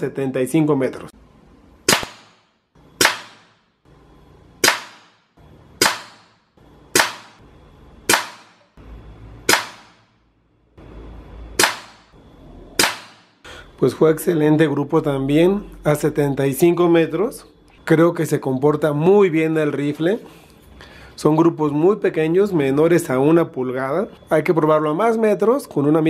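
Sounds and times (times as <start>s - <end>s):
air rifle shots: 1.8s - 3.6s, 4.6s - 7.4s, 9.5s - 10.1s, 11.6s - 12.1s, 12.8s - 13.4s.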